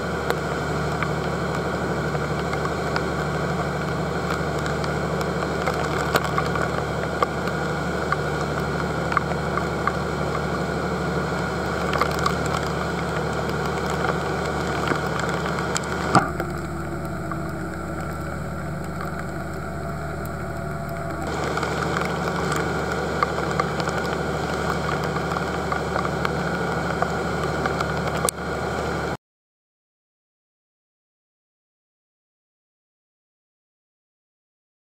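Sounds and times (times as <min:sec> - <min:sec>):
boat engine droning: 0:00.0 - 0:29.2
sharp ticks: 0:15.7 - 0:26.1.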